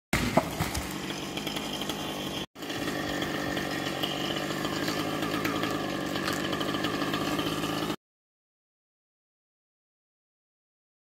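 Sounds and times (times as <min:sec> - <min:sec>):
chainsaw engine running: 0:00.2 - 0:08.0.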